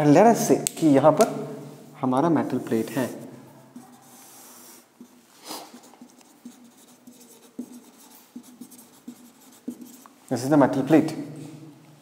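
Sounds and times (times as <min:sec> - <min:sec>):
pen scratching on paper: 0:03.7 - 0:10.2.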